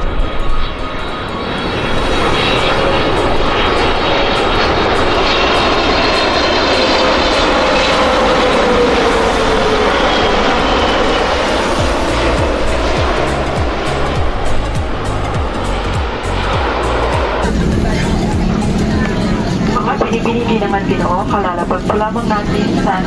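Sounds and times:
faint jet engine whine: 0.0s - 23.0s
jet engine cabin rush: 0.0s - 23.0s.

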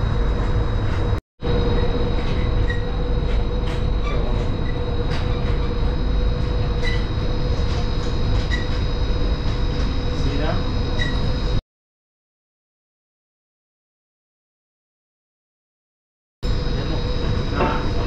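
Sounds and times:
constant hum: 0.0s - 11.6s, 16.4s - 18.0s
monorail rumble: 0.0s - 11.6s, 16.4s - 18.0s.

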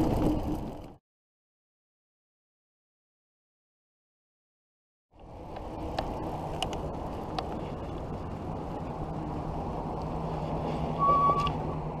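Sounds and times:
bicycle tyres rolling: 0.0s - 1.0s, 5.2s - 11.9s.

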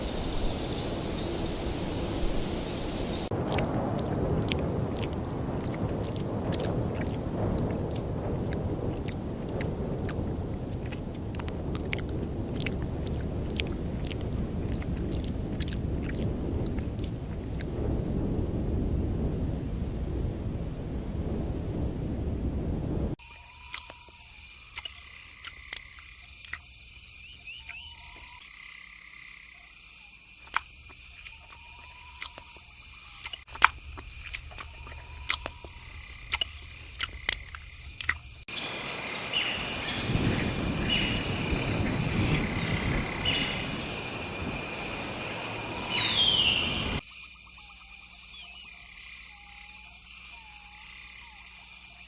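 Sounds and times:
frogs calling: 0.0s - 17.6s, 23.2s - 52.0s
insects trilling: 0.0s - 17.7s, 23.2s - 52.0s
hiss of ambience: 0.0s - 23.4s, 32.8s - 47.0s
chirping calls: 38.5s - 47.0s.

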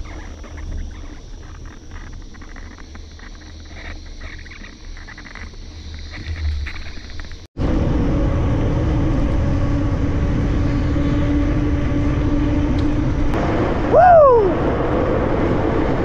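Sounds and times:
steady low hum: 0.0s - 16.0s
vehicle road drone: 5.9s - 16.0s.

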